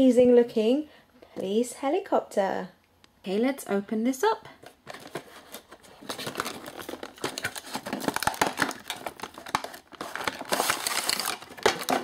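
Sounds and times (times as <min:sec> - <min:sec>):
cardboard and plastic rustling: 0:04.6 - 0:12.0.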